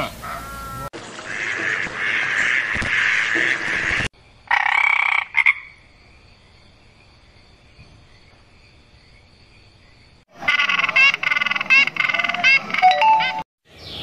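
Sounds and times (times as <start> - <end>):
croaking animal call: 0.0 - 5.8, 10.3 - 13.0.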